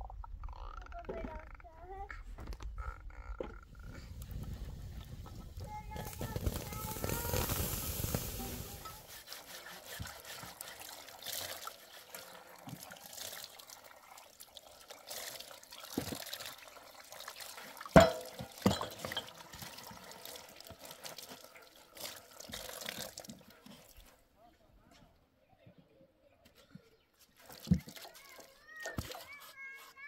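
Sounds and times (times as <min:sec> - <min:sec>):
water trickling into metal basin: 0:08.7 - 0:24.0
glassware knocking: 0:18.0 - 0:19.3.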